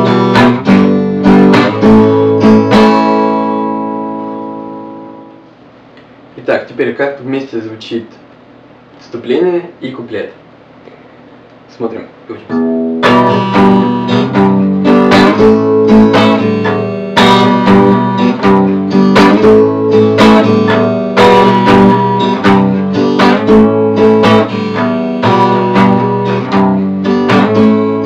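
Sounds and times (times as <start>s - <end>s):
acoustic guitar strumming: 0.0s - 5.7s, 12.4s - 28.0s.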